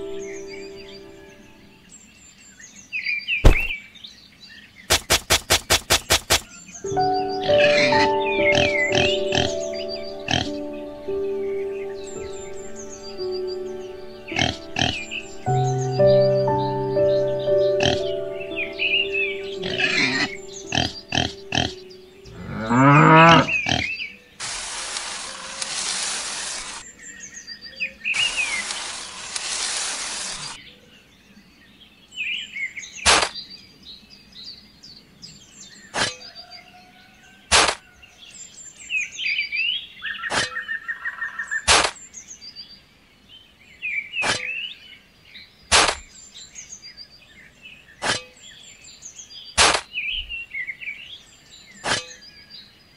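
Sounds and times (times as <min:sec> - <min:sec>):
birds chirping: 0:00.0 - 0:24.4
sharp single clicks: 0:04.9 - 0:06.5, 0:45.7 - 0:46.1
steady hiss: 0:04.9 - 0:06.5, 0:24.4 - 0:26.8, 0:28.2 - 0:30.6.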